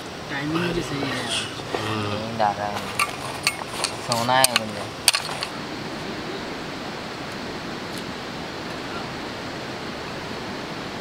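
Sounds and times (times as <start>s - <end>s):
river flowing over rocks: 0.0s - 11.0s
steel bowl clinking: 2.8s - 5.5s.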